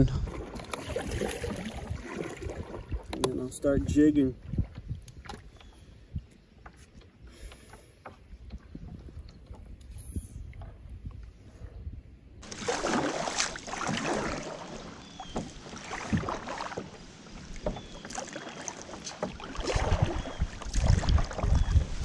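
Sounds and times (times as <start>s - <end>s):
wind on microphone: 0.0s - 6.4s, 8.2s - 12.5s, 19.6s - 22.0s
paddle splashing in water: 0.2s - 3.4s, 12.4s - 22.0s.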